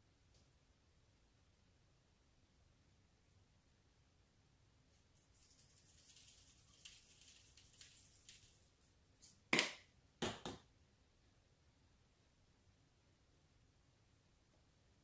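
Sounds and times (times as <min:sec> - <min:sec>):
seasoning rattling from shaker: 0:05.2 - 0:09.4.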